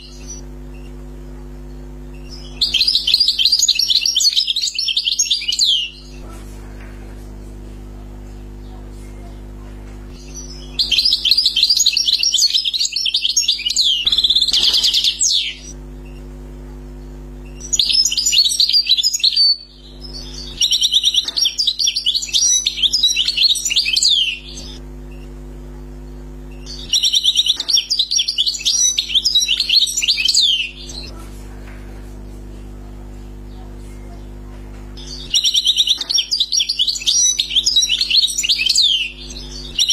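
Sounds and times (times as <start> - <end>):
goldfinch twittering and trilling: 17.5 - 24.8, 26.6 - 31.1, 35.0 - 39.9.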